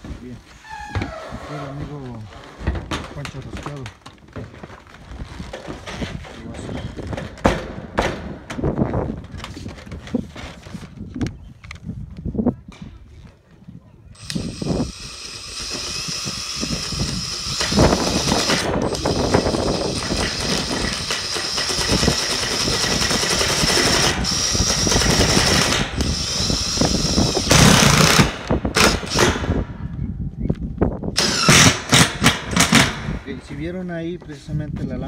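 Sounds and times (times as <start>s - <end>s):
cordless power driver running: 14.2s - 29.2s.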